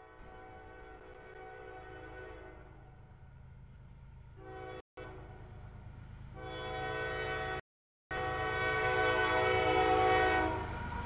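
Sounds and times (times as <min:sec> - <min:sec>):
train horn chord: 0:00.0 - 0:02.7, 0:04.4 - 0:05.3, 0:06.4 - 0:10.8.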